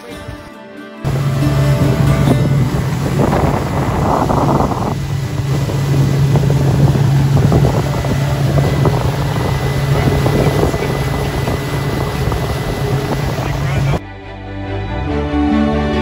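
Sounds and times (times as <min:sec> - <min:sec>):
motorboat engine drone: 0:01.1 - 0:14.0
water rushing from wake: 0:01.1 - 0:14.0
wind buffeting microphone: 0:01.1 - 0:14.0.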